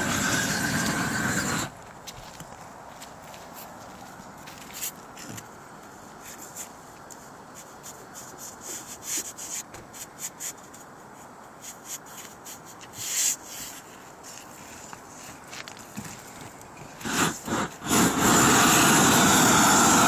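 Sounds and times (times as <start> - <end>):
gloved hands scraping roofing membrane: 0.0 - 1.8, 6.2 - 20.0
propane torch hissing: 0.0 - 1.8, 16.8 - 20.0.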